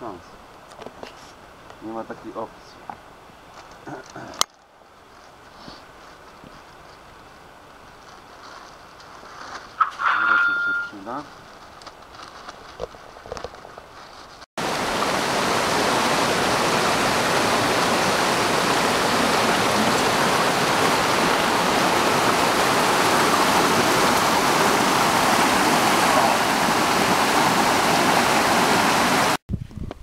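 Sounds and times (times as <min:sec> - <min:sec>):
stream rushing over boulders: 0:14.6 - 0:29.4.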